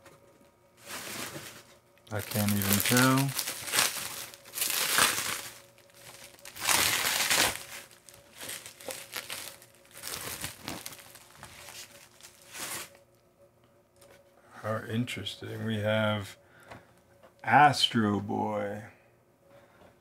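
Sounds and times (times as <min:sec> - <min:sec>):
bubble wrap crinkling: 0:00.8 - 0:13.0.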